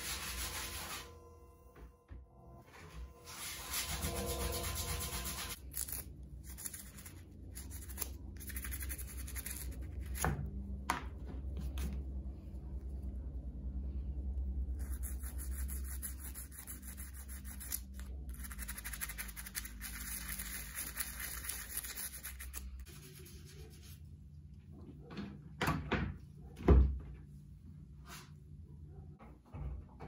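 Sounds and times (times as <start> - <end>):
toothbrush scrubbing metal part: 14.8 - 22.8.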